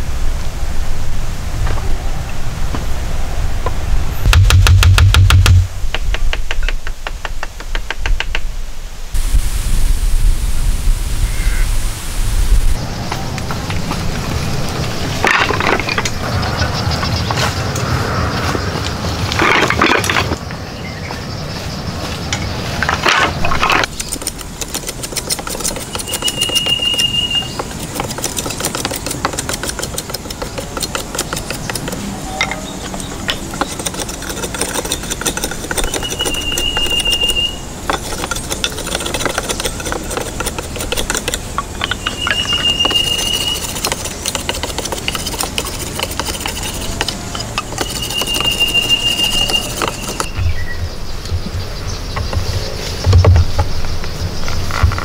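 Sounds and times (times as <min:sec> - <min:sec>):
wooden poles knocking and clattering: 0:22.3 - 0:50.3.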